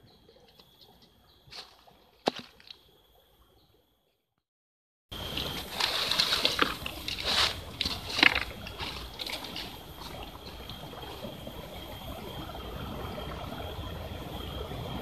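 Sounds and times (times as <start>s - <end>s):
creek trickling: 0.0s - 3.9s, 5.1s - 15.0s
footsteps on dry leaves: 1.5s - 2.7s, 5.2s - 11.0s.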